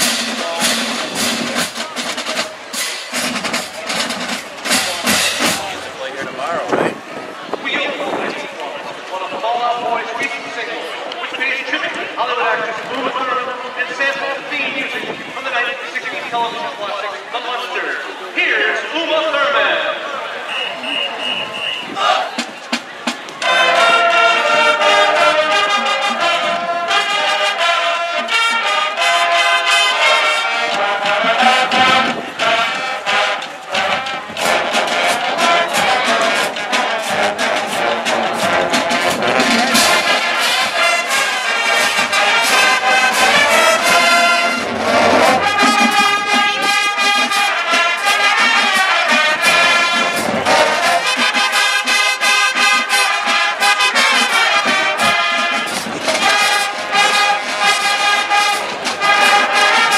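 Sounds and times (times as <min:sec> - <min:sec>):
brass section playing chords: 0:00.0 - 0:06.7, 0:23.4 - 0:59.9
marching drumline beat: 0:00.0 - 0:06.7, 0:20.8 - 0:59.9.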